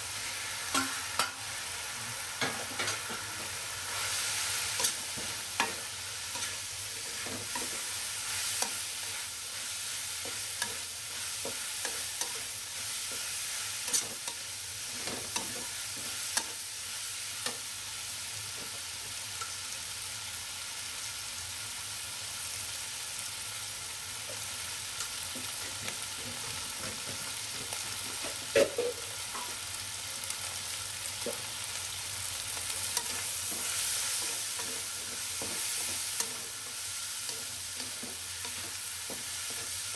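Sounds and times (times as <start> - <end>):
food sizzling in a wok: 0.0 - 39.9
metal spatula scraping a pan: 2.4 - 9.6, 10.2 - 16.5.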